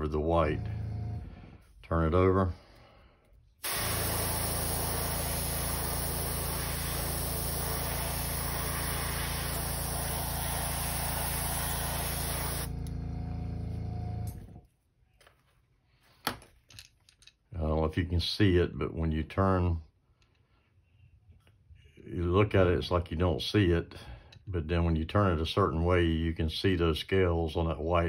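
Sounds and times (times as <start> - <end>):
compressor humming: 0.0 - 1.5, 3.6 - 14.6
airbrush spraying hiss: 3.6 - 12.7.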